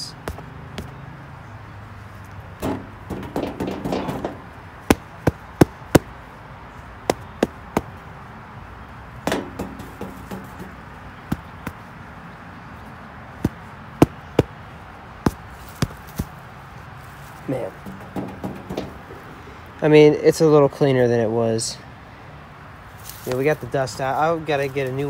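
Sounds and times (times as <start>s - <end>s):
air filter knocking on tractor: 2.6s - 6.1s, 9.3s - 11.8s, 17.8s - 19.4s.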